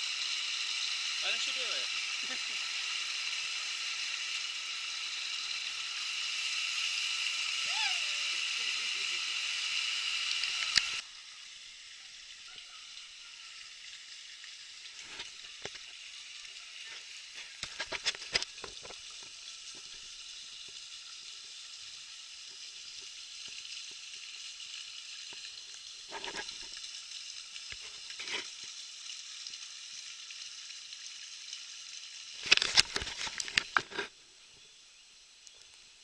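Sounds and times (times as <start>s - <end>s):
steady high hiss: 0.0s - 17.6s.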